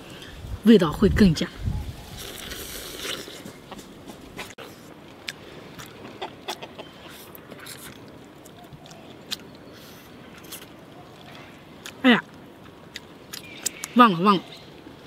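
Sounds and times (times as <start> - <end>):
person biting and chewing meat: 2.1 - 3.8, 4.4 - 12.0.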